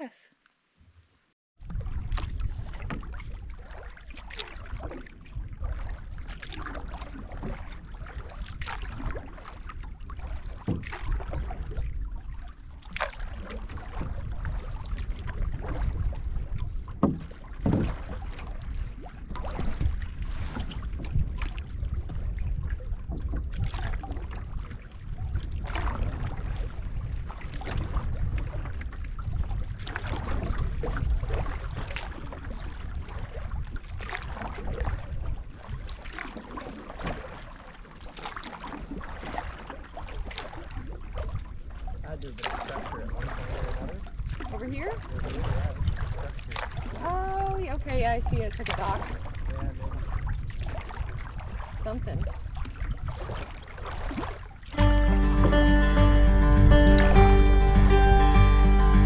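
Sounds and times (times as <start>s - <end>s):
wind rumble on microphone: 1.6s - 54.8s
water splashing against canoe: 1.6s - 57.5s.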